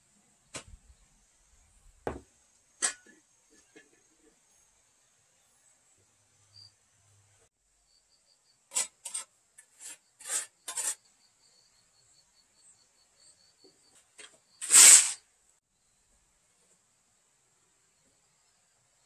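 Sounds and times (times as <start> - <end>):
trowel scraping wet mortar: 8.7 - 11.0.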